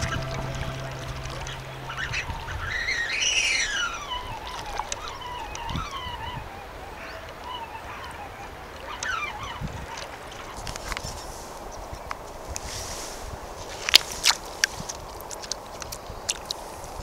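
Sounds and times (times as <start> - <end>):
bird calling: 0.0 - 10.6.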